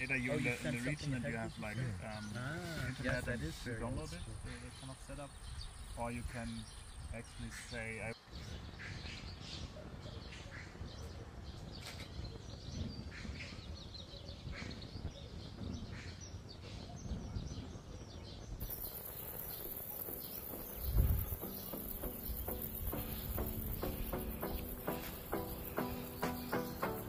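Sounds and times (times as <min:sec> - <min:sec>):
bird chirps: 0:18.6 - 0:27.0.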